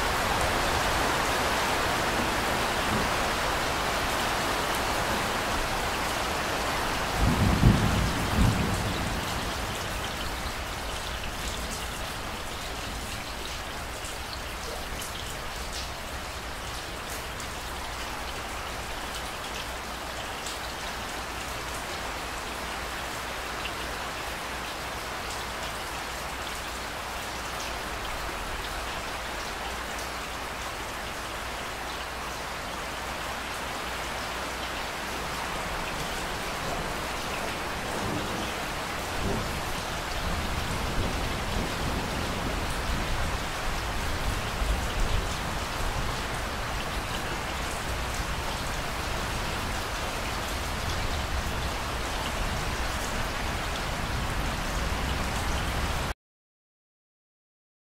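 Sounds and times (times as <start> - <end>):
steady rain falling: 0.0 - 56.2
low rumble of thunder: 7.0 - 10.8, 36.8 - 45.9.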